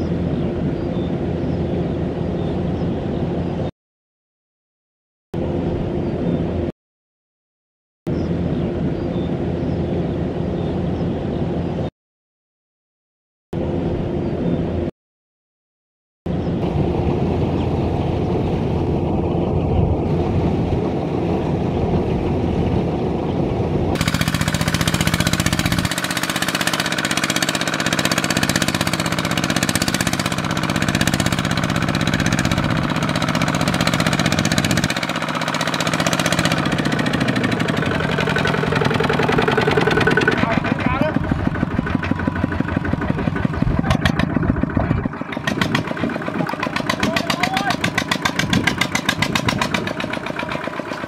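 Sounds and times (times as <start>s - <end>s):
diesel tractor engine chugging: 24.0s - 51.0s.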